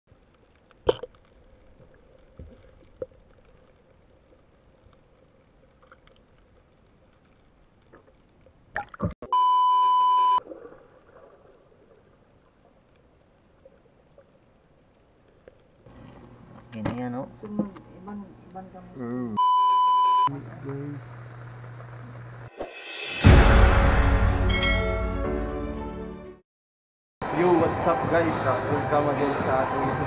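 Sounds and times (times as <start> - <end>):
high-pitched censor beep: 9.2 - 10.4, 19.4 - 20.3.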